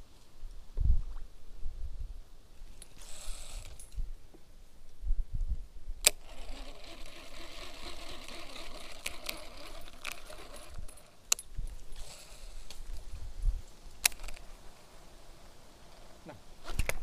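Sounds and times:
fishing reel spool whirring: 0:03.0 - 0:03.8, 0:06.1 - 0:11.2
fishing reel click: 0:06.0 - 0:11.0.

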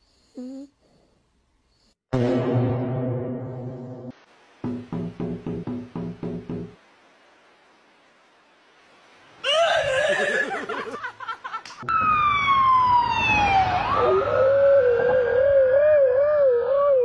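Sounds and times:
knocks: 0:04.6 - 0:06.8
siren wailing: 0:11.8 - 0:17.0
husky howling: 0:14.1 - 0:17.0.

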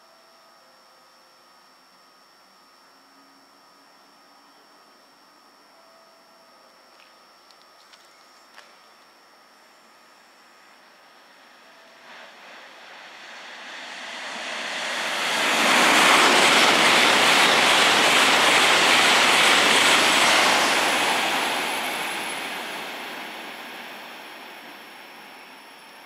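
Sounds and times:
train passing at high speed: 0:11.1 - 0:26.0.

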